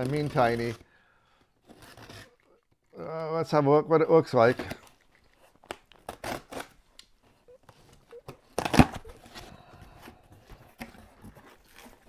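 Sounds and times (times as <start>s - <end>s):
box cutter slitting tape: 1.6s - 2.5s, 4.6s - 7.0s, 8.3s - 9.3s
tape and cardboard ripping: 4.6s - 7.1s, 8.2s - 9.4s.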